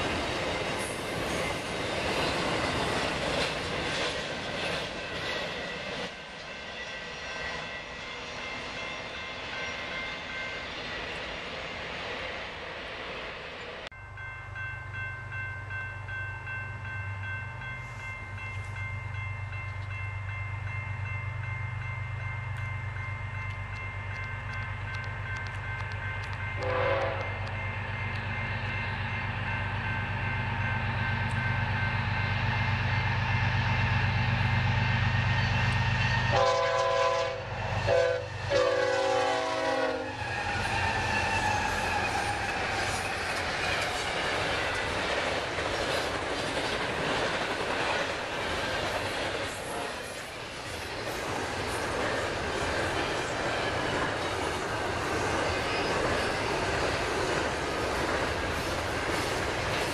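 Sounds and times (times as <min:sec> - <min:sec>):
wheel and rail clatter: 0:00.0 - 0:12.4, 0:40.2 - 0:59.9
train horn blasts: 0:26.6 - 0:27.5, 0:35.5 - 0:41.8.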